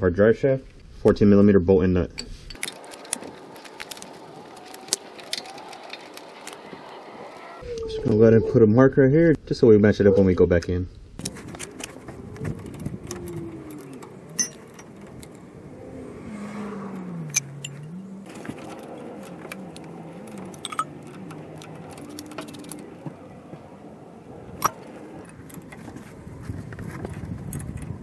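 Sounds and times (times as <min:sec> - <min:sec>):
metal tools clinking: 0:02.1 - 0:07.0, 0:11.4 - 0:15.7, 0:16.9 - 0:26.1
low wavering hum: 0:11.0 - 0:28.0
sharp metallic clicks: 0:16.9 - 0:23.3.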